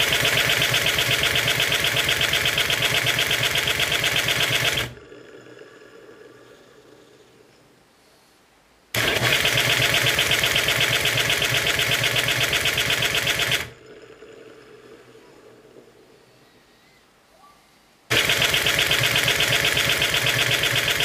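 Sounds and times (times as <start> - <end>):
electric starter motor cranking engine: 0.0 - 6.5, 9.0 - 15.9, 18.1 - 21.0.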